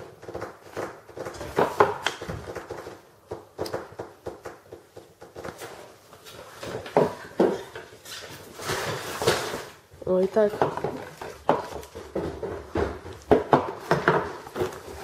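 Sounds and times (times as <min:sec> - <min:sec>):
cardboard packaging rustling: 0:05.4 - 0:15.0
knocks: 0:10.5 - 0:15.0.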